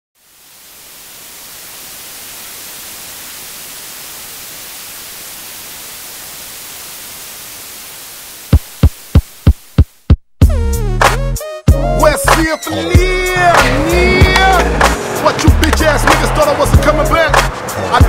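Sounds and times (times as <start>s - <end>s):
white noise hiss: 0.2s - 10.2s.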